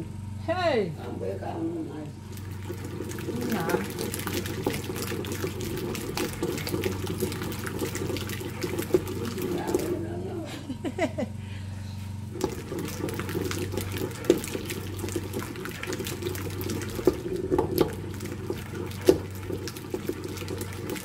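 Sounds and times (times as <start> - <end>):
pestle mashing tomatoes: 2.7 - 10.0, 12.4 - 21.0.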